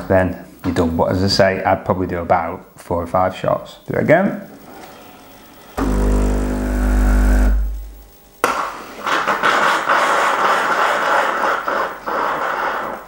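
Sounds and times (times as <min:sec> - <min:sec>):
espresso machine pump humming: 0:05.7 - 0:07.8.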